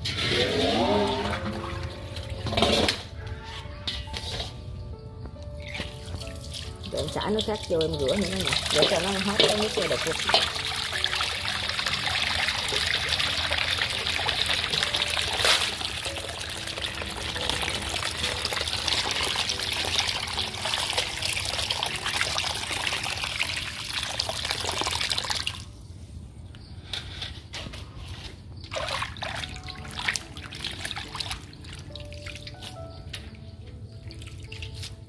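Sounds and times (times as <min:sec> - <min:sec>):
water dribbling and splashing: 0:00.0 - 0:03.1, 0:05.6 - 0:25.7, 0:28.6 - 0:35.0
water running into a basin: 0:05.8 - 0:25.7, 0:28.7 - 0:32.5.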